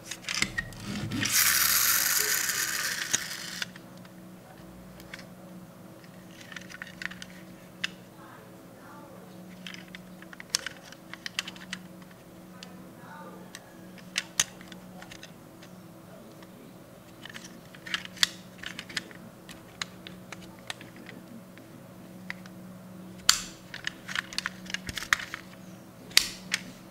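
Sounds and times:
faint steady hum: 0:00.0 - 0:26.9
toy truck doors clicking: 0:00.2 - 0:03.8.

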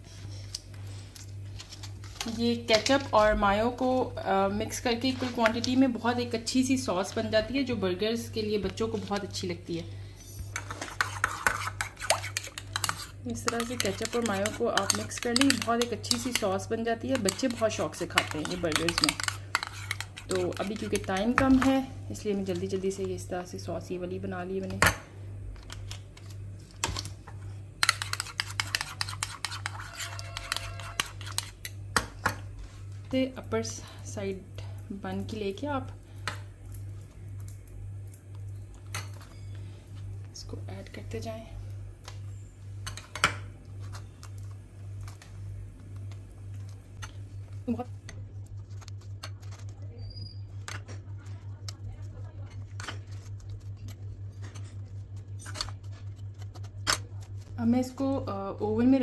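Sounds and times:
steady low hum: 0:00.0 - 0:59.0
fork clinking against bowl: 0:27.8 - 0:31.5.

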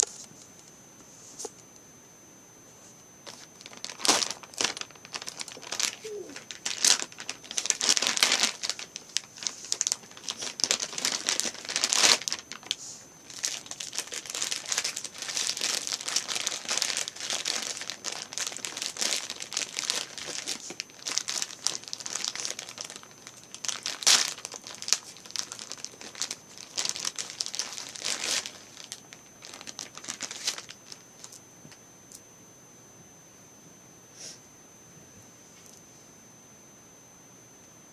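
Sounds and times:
plastic packaging crinkling: 0:03.2 - 0:31.4.

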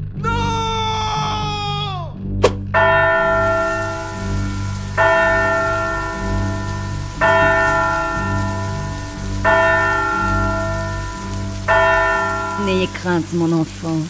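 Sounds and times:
steady low drone: 0:02.0 - 0:13.5
large bell tolling: 0:02.8 - 0:13.3.

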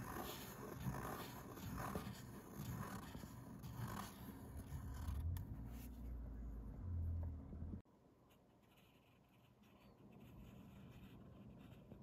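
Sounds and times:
fountain pen scratching on paper: 0:00.0 - 0:05.2, 0:08.3 - 0:12.0.

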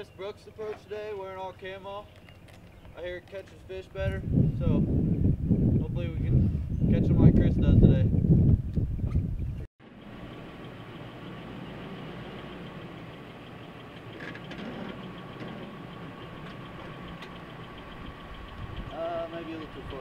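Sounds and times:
pickup truck engine idling: 0:09.8 - 0:20.0.

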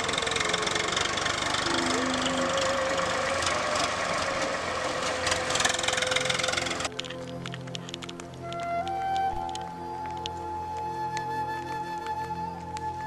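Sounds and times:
tractor diesel engine running: 0:00.0 - 0:07.1.

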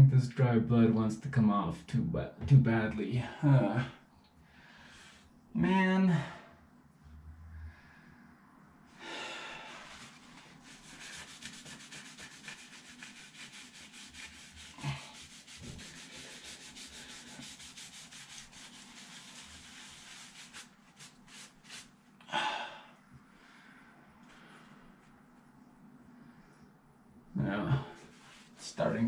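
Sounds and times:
paper towel rubbing skin: 0:09.7 - 0:22.0, 0:28.1 - 0:29.0.

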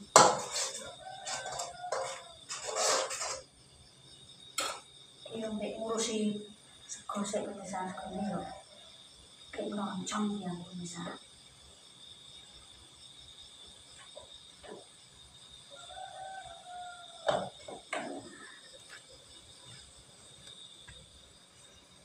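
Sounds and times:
utensil clanking on cooking pot: 0:00.0 - 0:03.4
crickets trilling: 0:00.0 - 0:22.0
faint rooster crowing: 0:00.5 - 0:03.4, 0:15.6 - 0:19.4.

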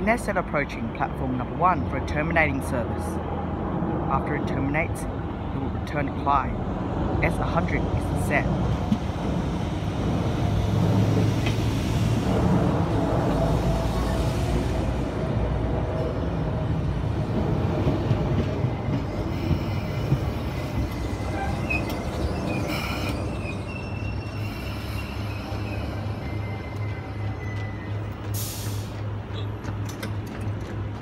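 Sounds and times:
train wheel rumble: 0:06.6 - 0:31.0
brake squeals: 0:18.8 - 0:29.6.

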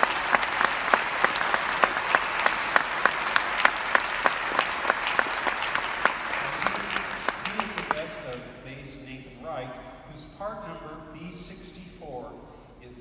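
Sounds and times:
crowd applauding: 0:00.0 - 0:08.5.

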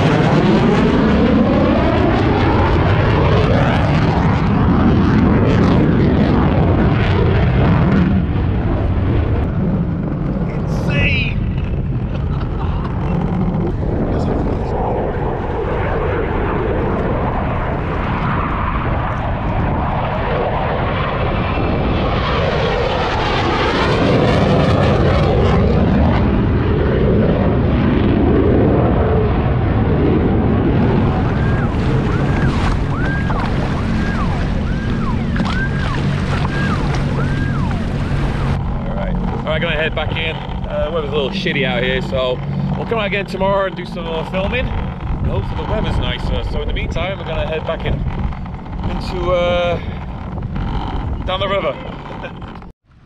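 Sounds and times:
fighter jet roar overhead: 0:00.0 - 0:53.0
wind on microphone: 0:00.0 - 0:53.0
waves: 0:31.0 - 0:39.6.

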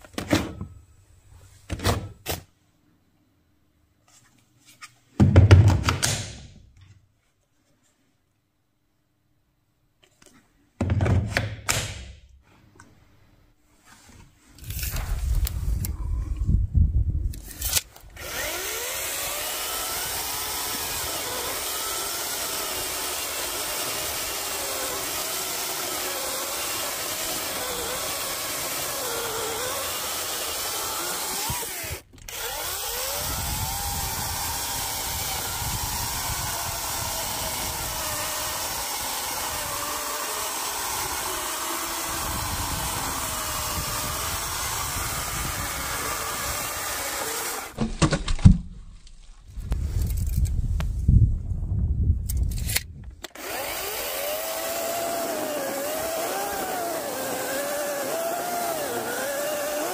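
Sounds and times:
chainsaw cutting log: 0:17.4 - 0:48.5, 0:53.3 - 0:59.9.

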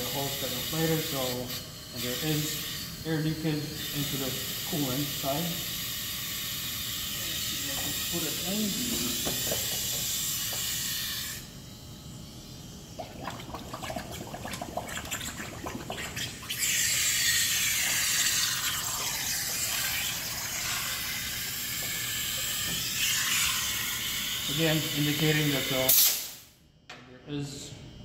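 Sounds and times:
water sloshing and splashing: 0:13.0 - 0:16.6
water gurgling: 0:13.0 - 0:20.7.

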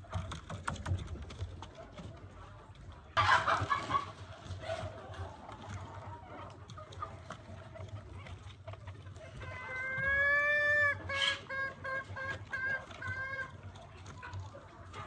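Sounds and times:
chicken clucking: 0:00.0 - 0:15.0
chicken long call: 0:09.4 - 0:13.5.

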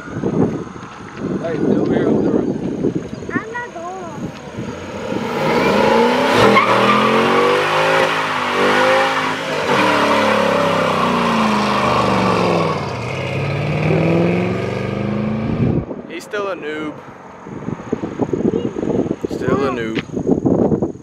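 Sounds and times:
car engine revving: 0:04.1 - 0:19.2.

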